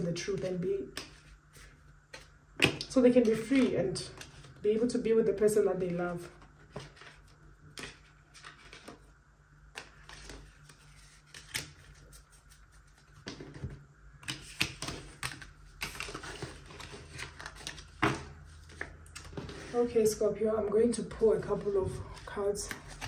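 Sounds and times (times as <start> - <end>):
cards clicking and tapping: 0.3 - 1.3, 13.2 - 16.5.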